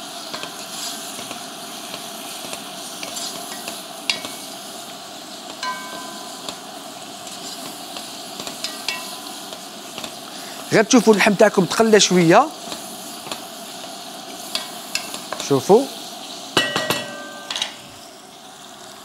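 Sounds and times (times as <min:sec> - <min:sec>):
meat sizzling in oil: 0:00.0 - 0:19.0
sharp ringing clinks: 0:05.6 - 0:06.5.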